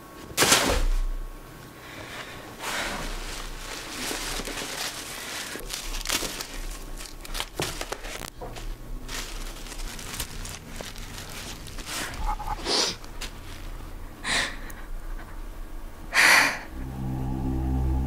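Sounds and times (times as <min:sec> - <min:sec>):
wrapping paper crinkling: 0:02.3 - 0:14.0.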